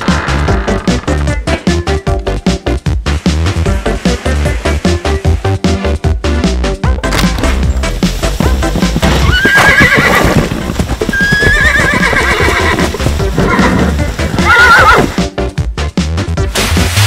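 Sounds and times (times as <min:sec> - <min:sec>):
upbeat electronic music: 0:00.0 - 0:09.3
horse whinnying: 0:09.1 - 0:15.2.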